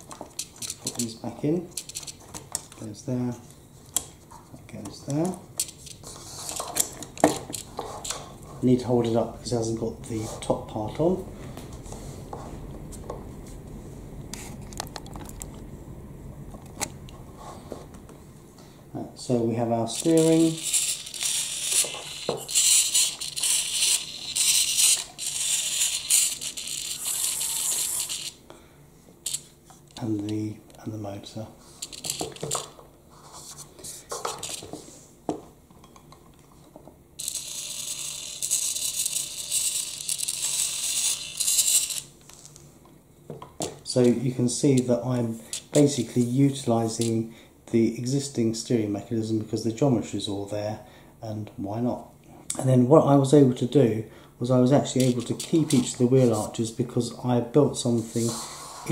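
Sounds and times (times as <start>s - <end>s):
low hum: 7.6s - 19.5s
small electric motor and gearbox: 19.9s - 28.4s, 37.2s - 42.1s.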